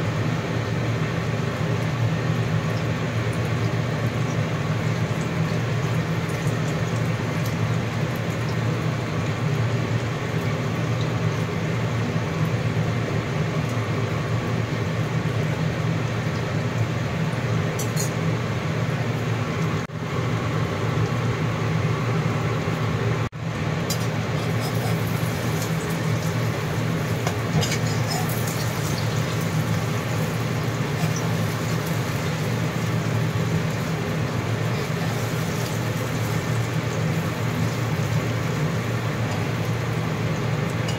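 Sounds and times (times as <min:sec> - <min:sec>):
omelette sizzling in oil: 0:23.9 - 0:40.9.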